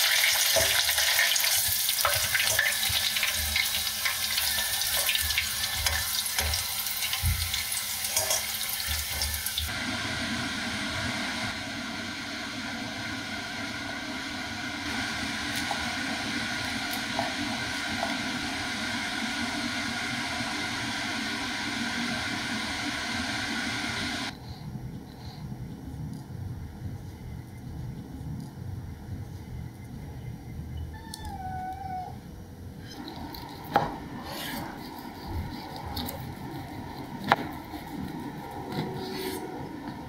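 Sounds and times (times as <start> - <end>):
fried chicken crackling: 0.0 - 9.7.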